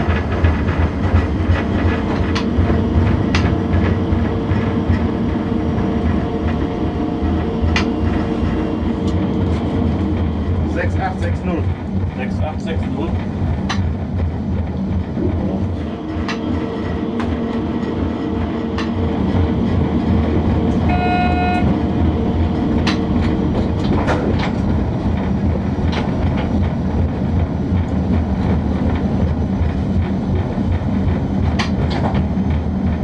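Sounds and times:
electric locomotive hum: 0:00.0 - 0:33.0
horn-like tone: 0:20.8 - 0:21.7
wheels clicking over rail joints: 0:22.8 - 0:33.0.

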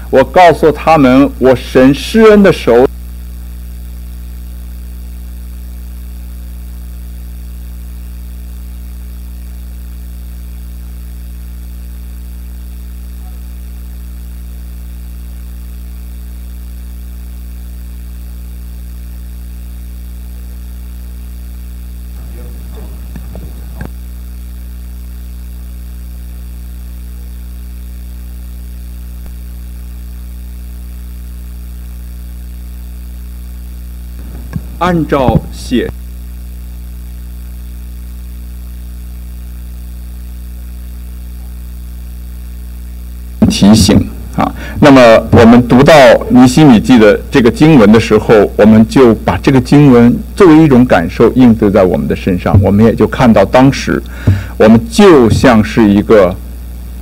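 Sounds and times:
electrical mains hum: 0:00.0 - 0:57.0
faint voice: 0:22.2 - 0:23.1.

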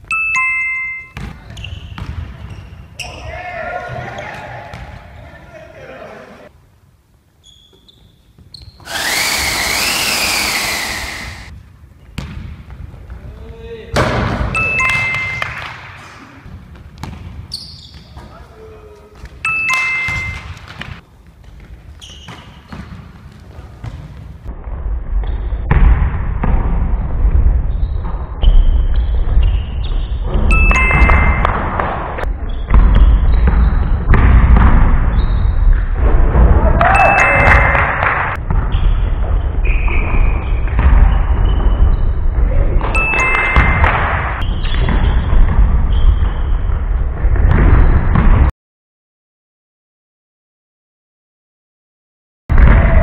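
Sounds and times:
basketball bouncing on wooden floor: 0:01.2 - 0:02.6, 0:16.5 - 0:18.1, 0:20.0 - 0:24.5, 0:30.1 - 0:39.4
whirring hiss with rising whine: 0:08.9 - 0:11.5
short faint beeps: 0:19.4 - 0:20.5
play noise: 0:30.5 - 0:32.0, 0:43.0 - 0:44.3.

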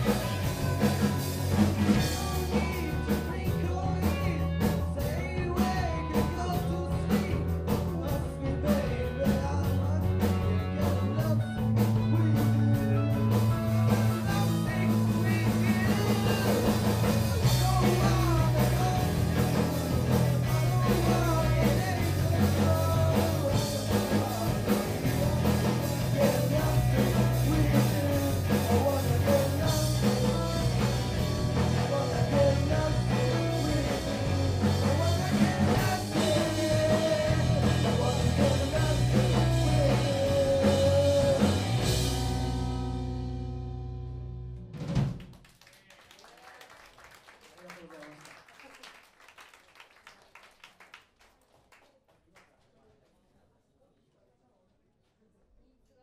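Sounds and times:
person singing: 0:00.0 - 0:42.8
bass guitar long notes: 0:00.0 - 0:45.2
live rock band playing: 0:00.0 - 0:45.2.

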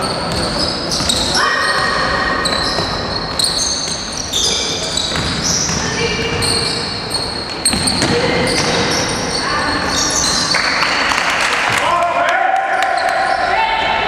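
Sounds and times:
sneakers squeaking: 0:00.0 - 0:11.0, 0:12.7 - 0:13.8
basketball bouncing: 0:05.0 - 0:06.6, 0:07.5 - 0:09.1.

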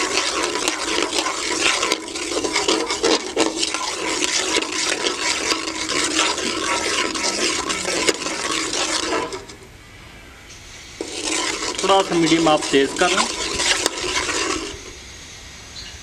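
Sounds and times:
spices frying in oil hissing: 0:00.0 - 0:09.2
metal skimmer scraping a pan: 0:00.0 - 0:09.7, 0:10.8 - 0:15.0.

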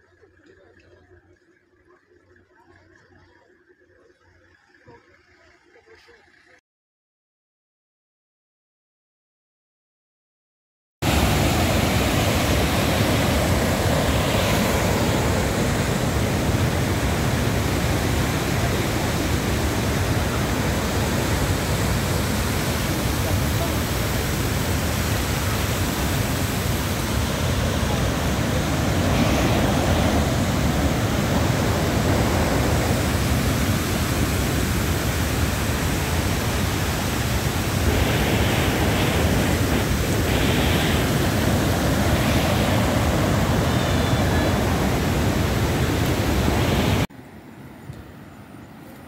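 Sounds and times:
floodwater rushing across road: 0:11.0 - 0:47.1.

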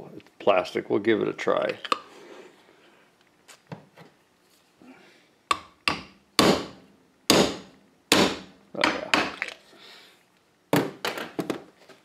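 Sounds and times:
mallet striking plastic tool: 0:05.5 - 0:09.4.

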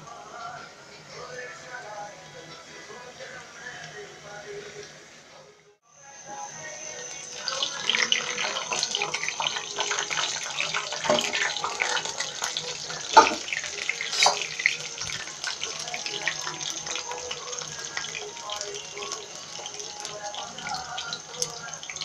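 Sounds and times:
fritters sizzling in hot oil: 0:06.2 - 0:22.0
loud cracks from frying: 0:06.9 - 0:22.0.

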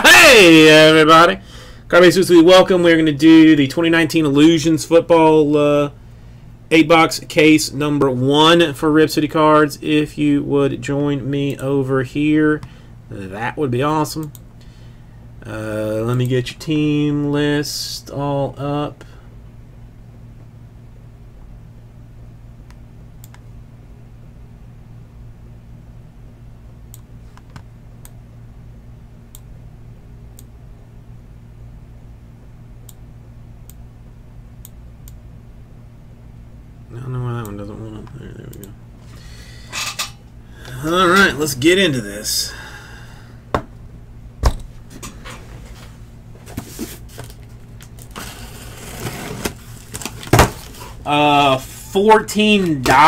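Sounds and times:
steady low hum: 0:00.0 - 0:53.0
wrapping rustling: 0:46.5 - 0:51.0.

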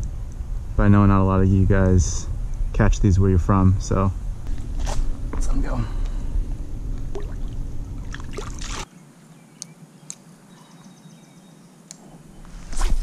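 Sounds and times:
heavy low rumble: 0:00.0 - 0:08.5
water sloshing and splashing: 0:07.1 - 0:08.9.

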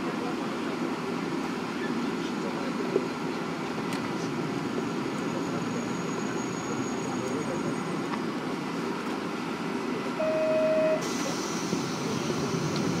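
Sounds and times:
diesel railcar engine idling: 0:00.0 - 0:13.0
air hiss: 0:11.0 - 0:13.0.

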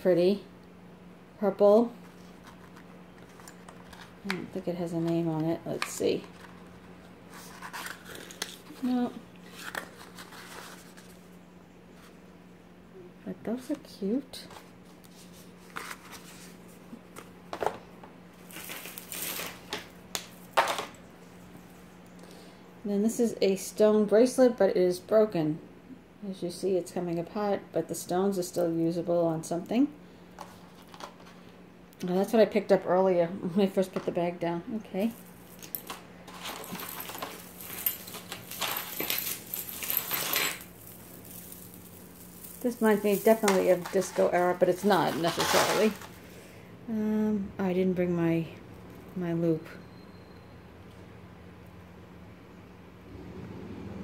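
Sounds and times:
bag crinkling: 0:18.4 - 0:20.5, 0:35.1 - 0:46.4
metal jewelry jingling: 0:35.1 - 0:44.9.

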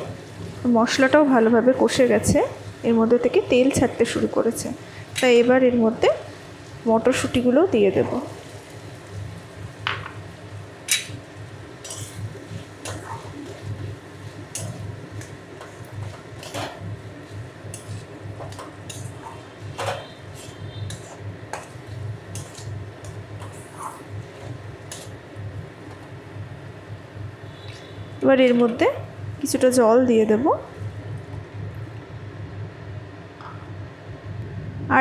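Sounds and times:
low steady hum: 0:00.0 - 0:35.0
metal spatula scraping a pan: 0:11.8 - 0:13.6, 0:16.0 - 0:16.8, 0:17.7 - 0:22.8, 0:23.4 - 0:25.1.

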